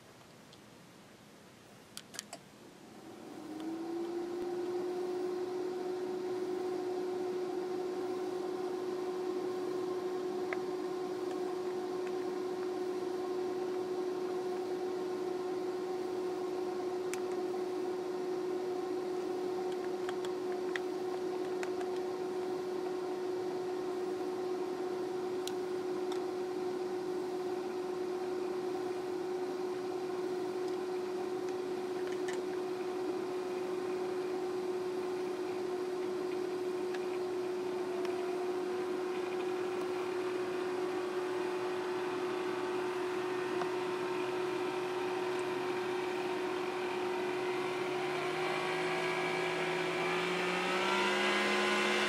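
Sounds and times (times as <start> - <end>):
steady pitched electric hum: 0.0 - 52.0.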